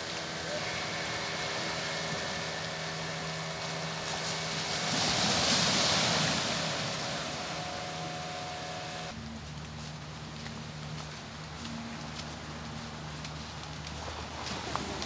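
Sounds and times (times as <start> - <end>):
waves washing onto rocky shore: 0.0 - 9.2, 12.4 - 15.0
low engine hum: 0.0 - 15.0.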